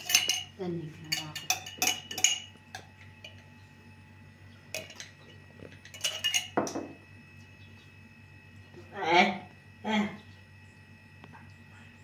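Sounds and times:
metal spoon clinking on jar: 0:00.0 - 0:03.5, 0:04.7 - 0:05.2, 0:05.8 - 0:06.8.

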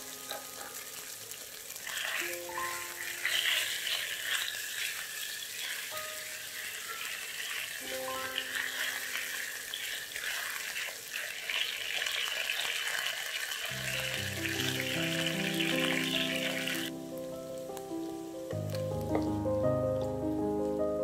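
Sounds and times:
soft background music: 0:00.0 - 0:04.2, 0:05.7 - 0:09.9, 0:13.8 - 0:21.0
chicken sizzling in hot oil: 0:00.0 - 0:21.0.

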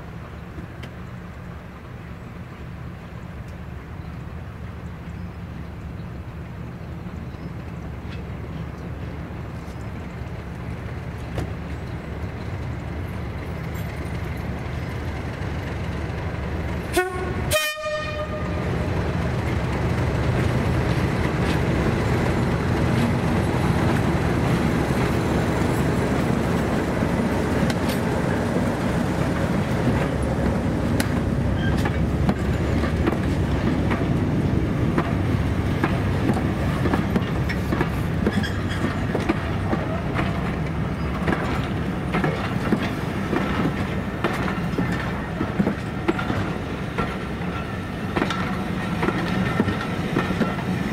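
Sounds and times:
diesel locomotive engine rumble: 0:00.0 - 0:50.9
wheels clicking over rail joints: 0:07.6 - 0:50.9
train horn notes: 0:16.9 - 0:18.7.

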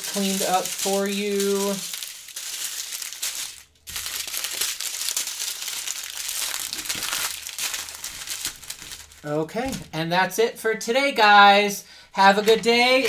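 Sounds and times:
plastic bags crinkling: 0:00.0 - 0:10.0.

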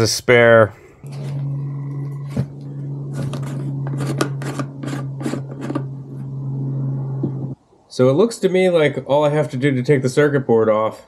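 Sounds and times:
steady low hum: 0:00.3 - 0:10.2
short scraping rubs: 0:00.8 - 0:07.6.

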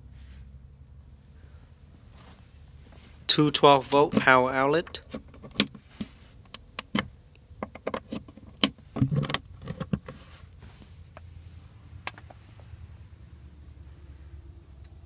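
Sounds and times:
low steady hum: 0:00.0 - 0:15.0
plastic clicks and knocks: 0:06.5 - 0:10.2.

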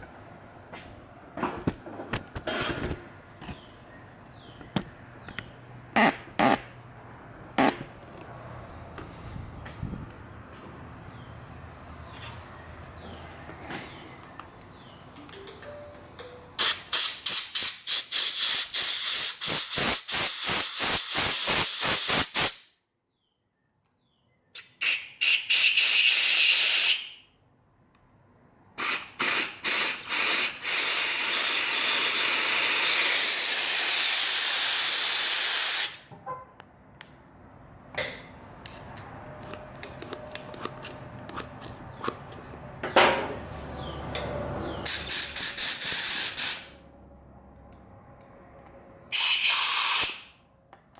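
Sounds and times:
compressed air blow gun hissing: 0:16.9 - 0:22.6, 0:28.8 - 0:36.0, 0:44.9 - 0:46.8, 0:49.1 - 0:50.3.

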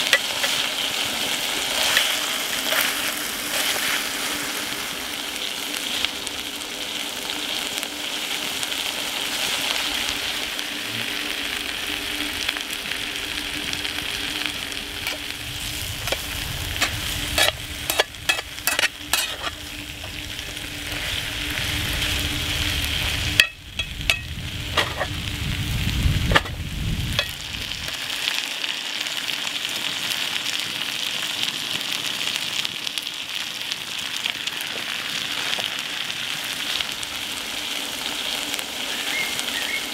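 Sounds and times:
food sizzling in skillet: 0:00.0 - 0:39.9
spatula scraping pan: 0:15.0 - 0:20.2.

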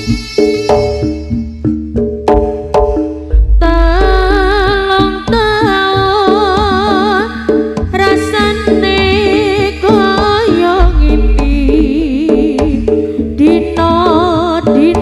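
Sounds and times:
gamelan music: 0:00.0 - 0:15.0
deep low tone: 0:03.3 - 0:04.8.

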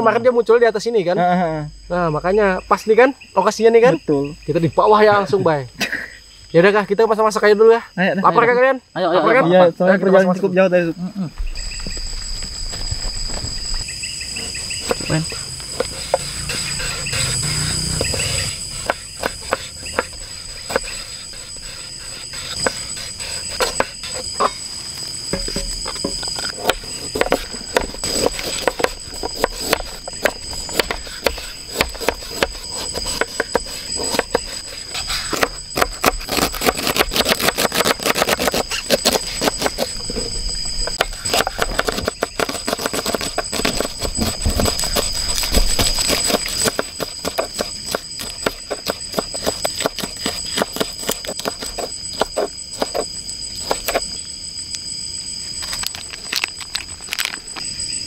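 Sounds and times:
night insects chirping: 0:00.0 - 0:58.0
knife chopping on wooden board: 0:14.8 - 0:21.2, 0:25.4 - 0:34.7, 0:40.9 - 0:53.0.

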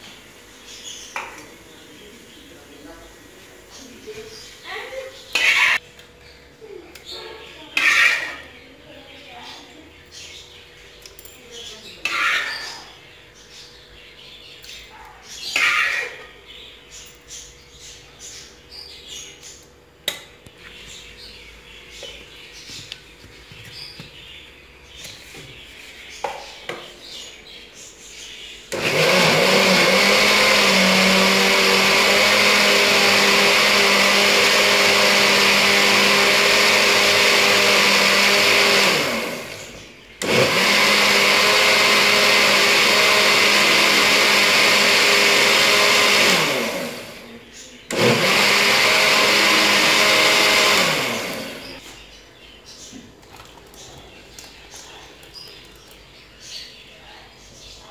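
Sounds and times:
mixer grinder motor running: 0:28.7 - 0:51.8.

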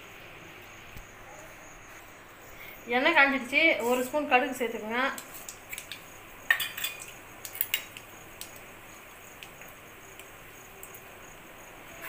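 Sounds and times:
mustard seeds popping in oil: 0:05.1 - 0:11.1.

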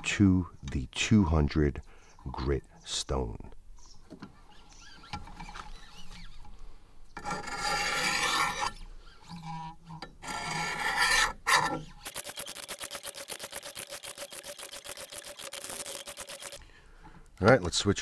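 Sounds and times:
sharpening stone rasping on steel: 0:07.2 - 0:11.7.

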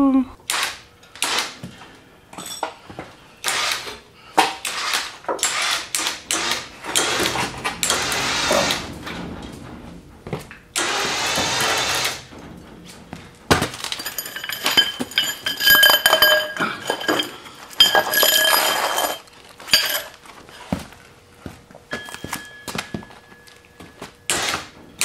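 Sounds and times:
steel pipes clanking on concrete: 0:06.6 - 0:20.2, 0:21.9 - 0:24.0
faint ringing tone: 0:21.9 - 0:24.0.

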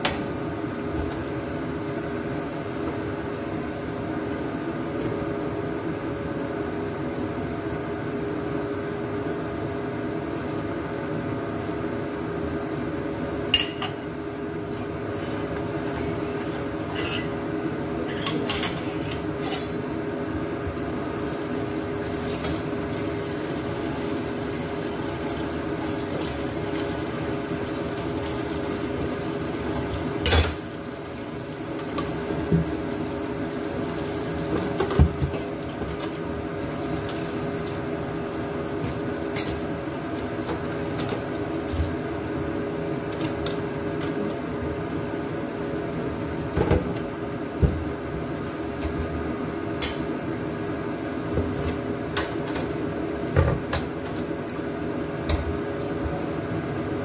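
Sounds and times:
utensils and dishes clinking: 0:18.1 - 0:19.9.

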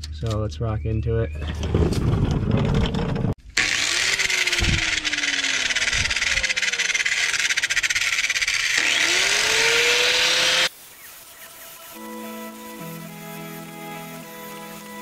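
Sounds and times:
low rumbling handling noise: 0:00.0 - 0:03.4
cut-off wheel cutting metal: 0:03.4 - 0:10.7.

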